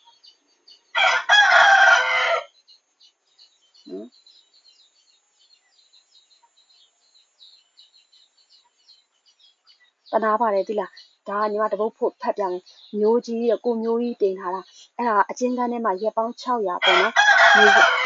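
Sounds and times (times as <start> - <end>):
small birds chirping: 0.0 - 18.0
rooster crowing: 1.0 - 2.5, 16.8 - 18.0.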